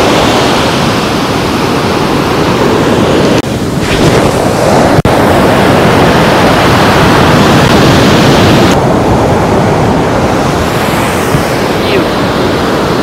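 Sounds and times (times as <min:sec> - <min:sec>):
sea surf on shore: 0:00.0 - 0:13.0
wind buffeting microphone: 0:00.0 - 0:13.0.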